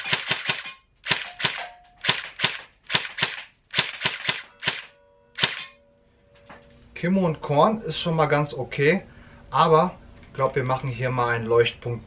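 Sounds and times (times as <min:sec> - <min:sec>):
airsoft rifle firing bursts: 0:00.0 - 0:05.7.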